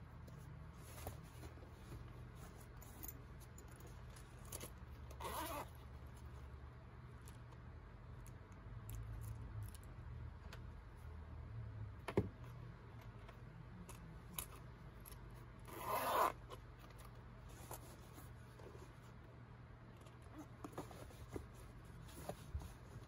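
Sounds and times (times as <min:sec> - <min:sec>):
low steady hum: 0:00.0 - 0:23.0
fabric rustling and handling: 0:00.1 - 0:06.5, 0:20.0 - 0:23.0
zipper pull: 0:04.5 - 0:05.8, 0:15.6 - 0:16.6.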